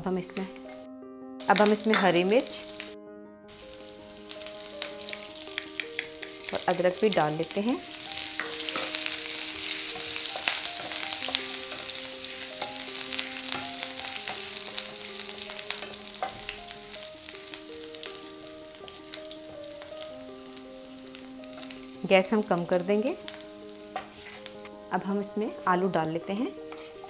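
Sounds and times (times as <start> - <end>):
spices sizzling in hot oil: 1.4 - 27.0
spatula clicking on pan: 4.8 - 6.7.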